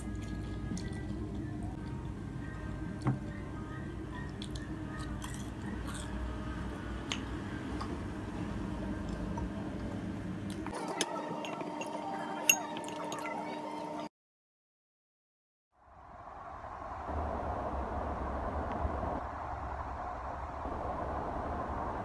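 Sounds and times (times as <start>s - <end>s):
chewing: 0.0s - 1.5s, 4.2s - 6.2s
steady background hum: 0.0s - 14.1s.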